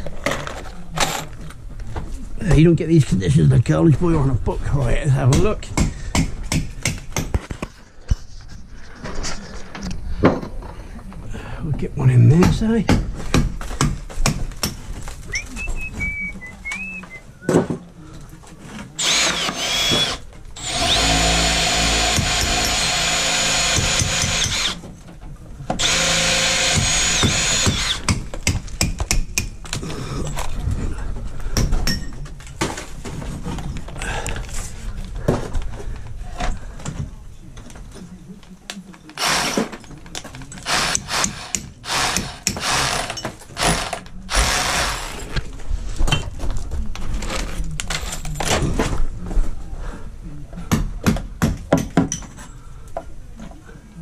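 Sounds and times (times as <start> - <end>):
cordless drill boring wood: 19.0 - 24.8, 25.8 - 28.1, 39.2 - 39.7, 40.6 - 45.2.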